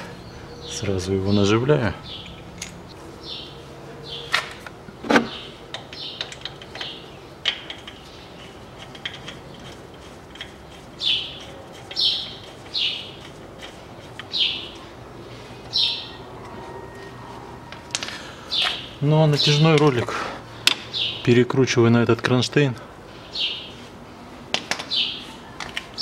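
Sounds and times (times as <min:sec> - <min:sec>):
bird chirping: 0:00.0 - 0:04.4, 0:05.2 - 0:17.2, 0:18.1 - 0:19.9, 0:20.8 - 0:21.5, 0:23.1 - 0:23.8, 0:24.9 - 0:26.0.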